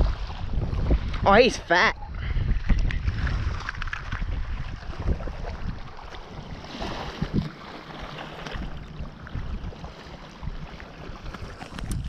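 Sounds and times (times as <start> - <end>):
surf washing: 0.0 - 12.0
wind buffeting microphone: 0.0 - 12.0.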